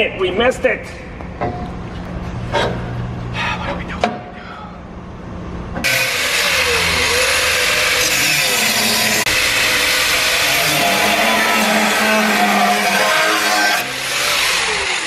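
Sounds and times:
angle grinder cutting steel: 0:05.8 - 0:15.0.

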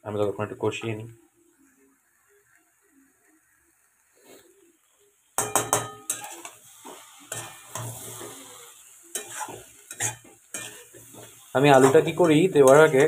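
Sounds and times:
frying sizzle: 0:00.0 - 0:13.0
spatula scraping metal pan: 0:05.5 - 0:13.0.

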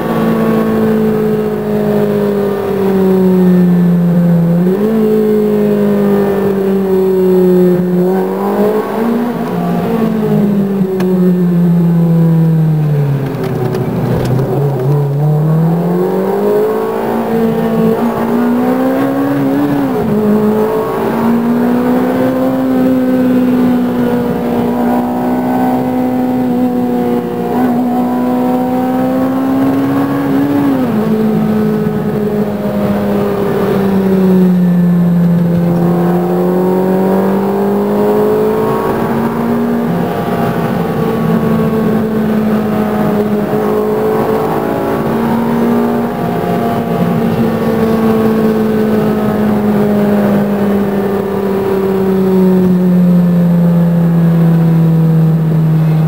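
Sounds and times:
sports car engine revving: 0:00.0 - 0:56.0.

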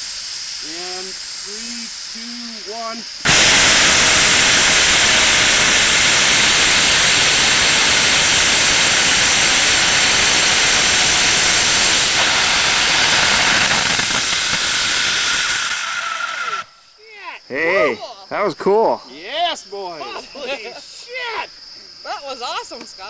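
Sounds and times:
rocket motor hissing roar: 0:00.0 - 0:16.9.

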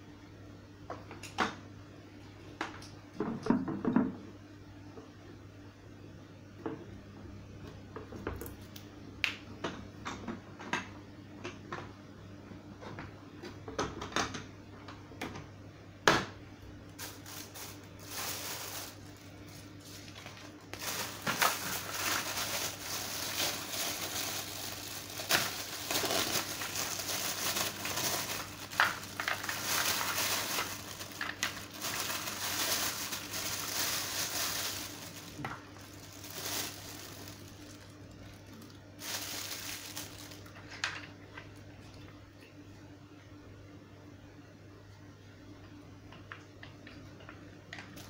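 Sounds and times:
plastic bag crinkling: 0:17.0 - 0:41.1.

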